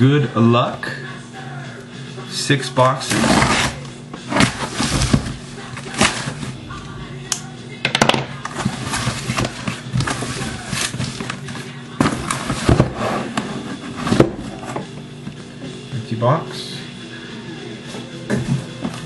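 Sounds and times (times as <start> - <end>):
packaging rustling and crinkling: 8.4 - 13.0.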